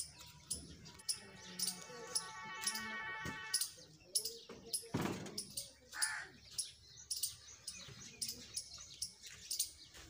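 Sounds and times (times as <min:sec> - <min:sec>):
small birds chirping: 0:00.0 - 0:10.0
crow cawing: 0:06.0 - 0:06.4.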